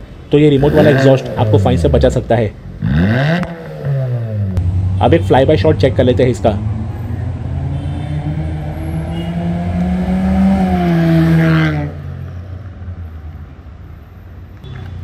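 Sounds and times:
car accelerating past: 6.7 - 12.3.

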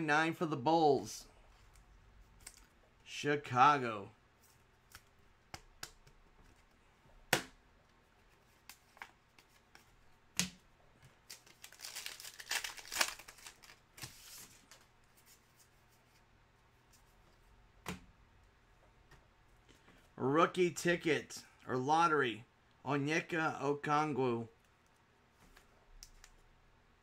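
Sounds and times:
foil wrapper tearing and crinkling: 11.2 - 14.2.

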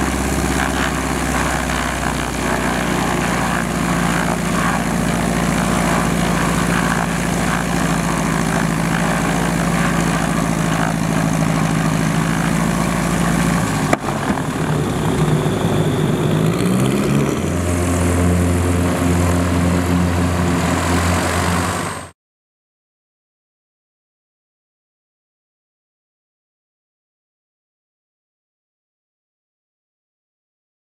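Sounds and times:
light aircraft engine and propeller: 0.0 - 22.2.

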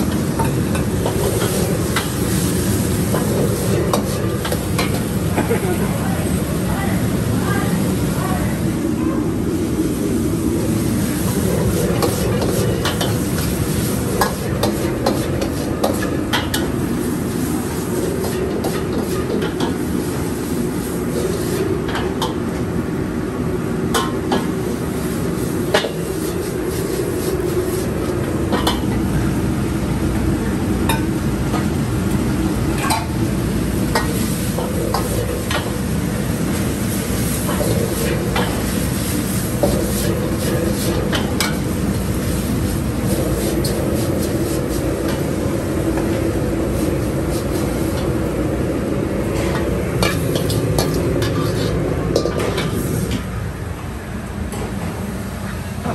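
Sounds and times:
food sizzling: 0.0 - 8.6, 10.6 - 22.3, 32.0 - 53.1
wok burner rush: 0.0 - 53.7
spatula scraping steel wok: 49.4 - 52.9.

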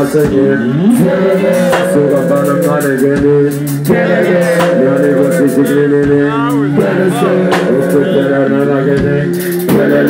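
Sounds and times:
hip hop backing track: 0.0 - 10.0
person rapping into microphone: 0.0 - 10.0.

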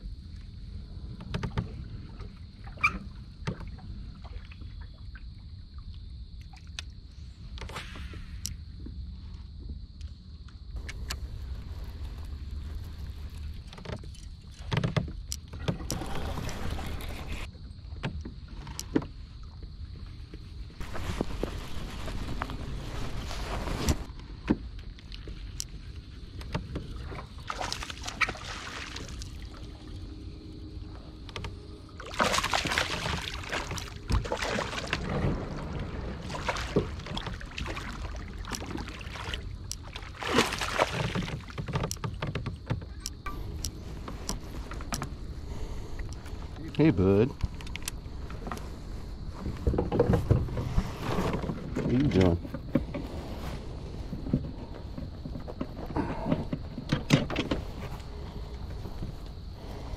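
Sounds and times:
water splashing against kayak: 10.8 - 30.3, 31.0 - 59.9
sharp clicks and knocks: 41.6 - 45.1.

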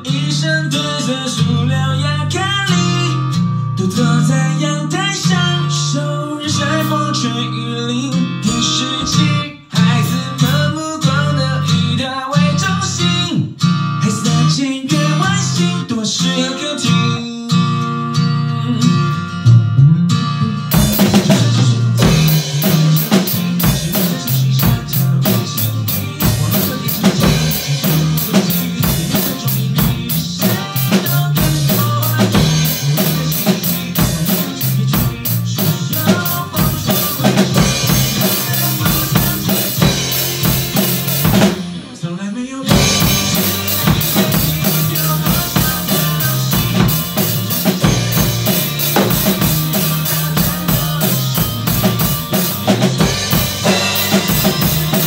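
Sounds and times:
backing track with bass line: 0.0 - 16.0, 16.8 - 42.0, 42.7 - 55.0
acoustic drum kit beat: 8.4 - 11.8, 19.5 - 42.0, 42.7 - 55.0.

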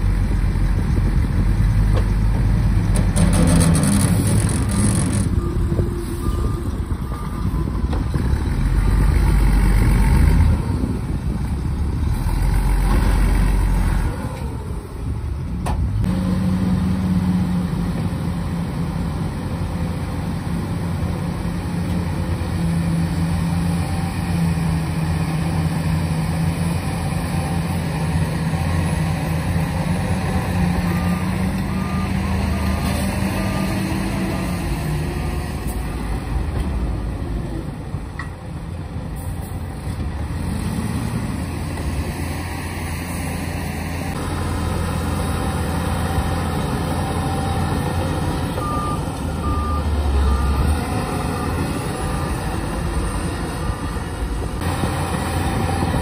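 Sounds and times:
faint reversing beeps: 4.7 - 8.0, 48.6 - 52.6
diesel truck engine running: 24.3 - 56.0.

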